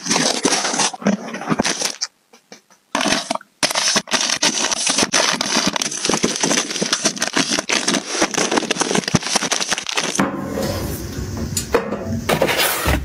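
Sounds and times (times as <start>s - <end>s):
plastic packaging crinkling: 0.0s - 2.1s, 2.9s - 10.2s.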